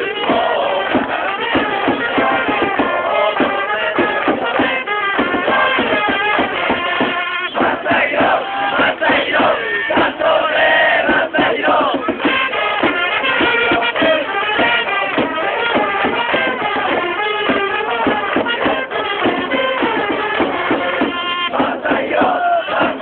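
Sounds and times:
crowd singing along: 0.0 - 23.0
steady drumbeat: 0.0 - 23.0
trumpets playing: 0.0 - 23.0.

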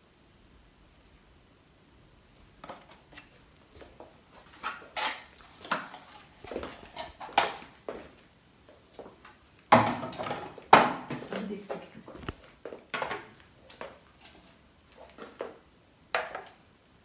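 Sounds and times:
rustling and clinking of objects: 2.6 - 8.2.

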